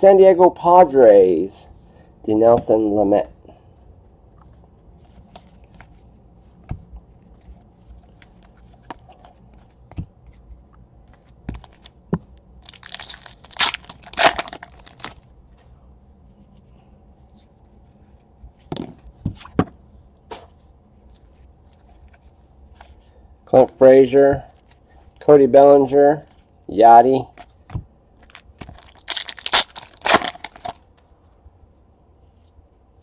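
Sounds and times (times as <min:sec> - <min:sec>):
foil wrapper tearing: 0:12.6 - 0:15.2, 0:28.3 - 0:30.8.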